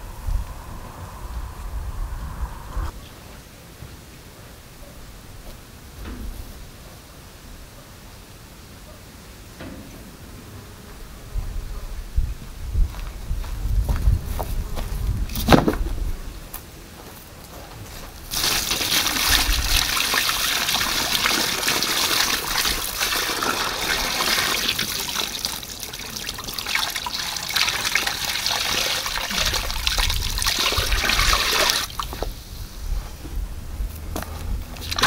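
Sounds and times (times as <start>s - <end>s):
water pouring into plastic tub: 18.3s - 32.2s, 34.8s - 35.0s.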